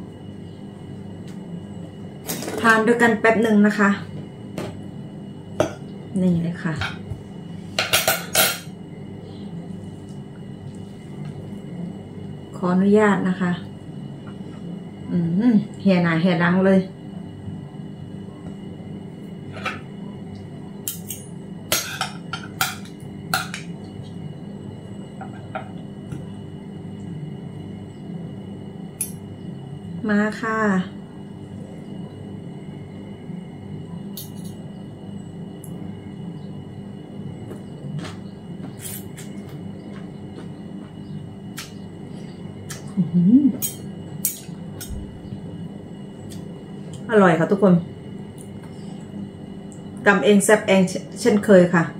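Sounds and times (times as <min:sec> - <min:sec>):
steady low hum: 0:00.0 - 0:51.9.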